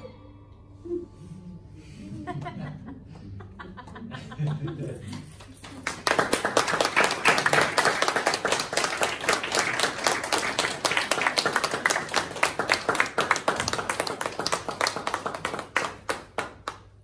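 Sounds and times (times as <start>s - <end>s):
audience applauding: 5.2s - 17.0s.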